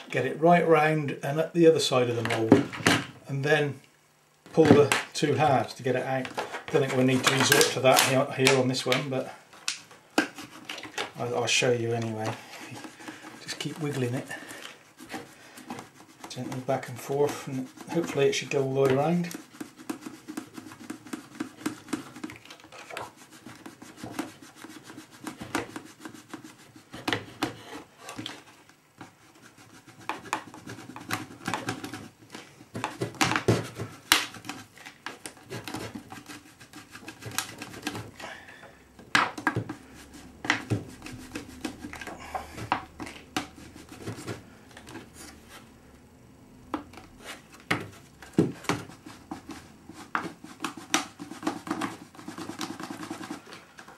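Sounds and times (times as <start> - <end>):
plastic sheet rubbing and scraping: 4.6 - 9.3, 10.3 - 38.2, 39.7 - 45.6, 47.2 - 53.7.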